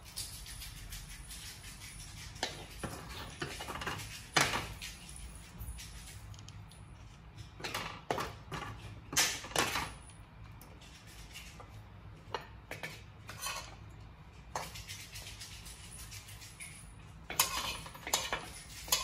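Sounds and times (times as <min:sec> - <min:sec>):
utensil scraping a ceramic plate: 0:00.0 - 0:05.0, 0:10.6 - 0:19.0.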